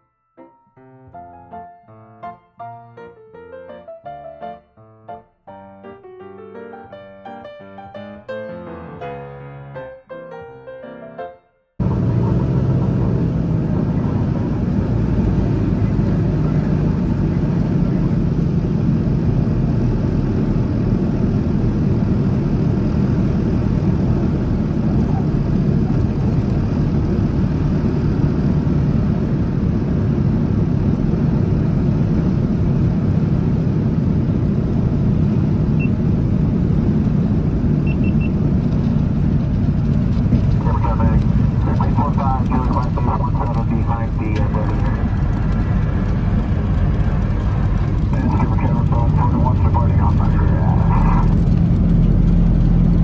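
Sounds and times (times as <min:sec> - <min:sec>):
propeller plane engines humming: 0:11.8 - 0:53.0.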